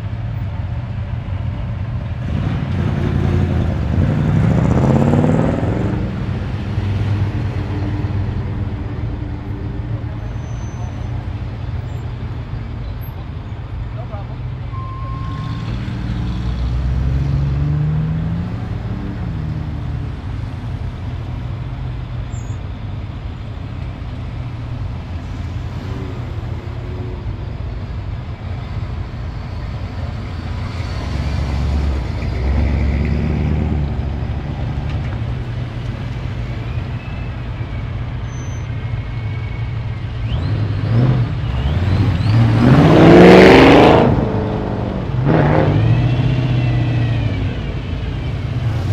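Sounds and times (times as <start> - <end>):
car engines idling and rolling past: 0.0 - 48.9
car accelerating past: 2.2 - 8.8, 40.3 - 48.9.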